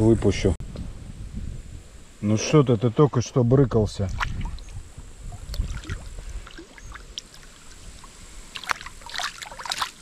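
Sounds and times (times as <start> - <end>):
small water splashes: 4.0 - 10.0
river water sloshing: 4.1 - 10.0.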